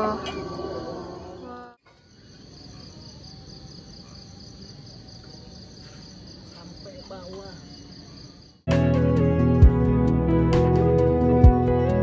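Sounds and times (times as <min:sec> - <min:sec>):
crickets trilling: 0:00.0 - 0:08.7.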